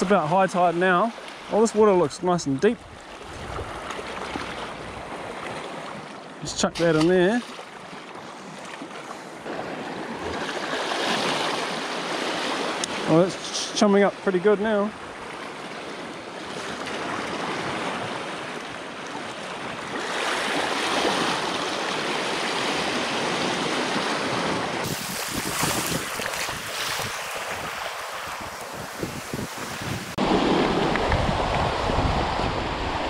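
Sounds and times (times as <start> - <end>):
wind buffeting the microphone: 2.8 - 5.4, 24.8 - 33.0
sea swells washing over rocks: 24.8 - 33.0.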